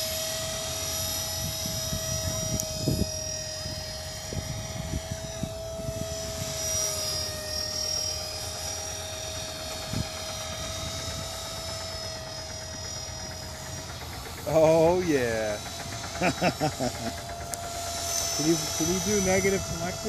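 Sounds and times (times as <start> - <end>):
helicopter rotor and motor whine: 0.0 - 20.0
wind rumble on microphone: 1.2 - 6.6, 9.7 - 11.6.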